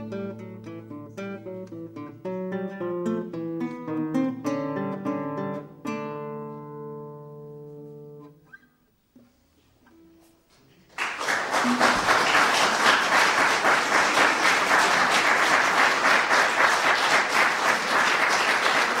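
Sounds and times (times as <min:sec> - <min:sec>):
classical guitar note: 0:00.0 - 0:10.8
audience applause: 0:10.9 - 0:19.0.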